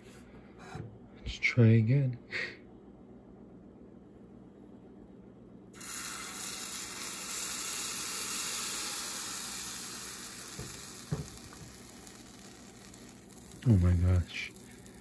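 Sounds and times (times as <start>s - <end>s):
batter sizzling in a frying pan: 5.8s - 15.0s.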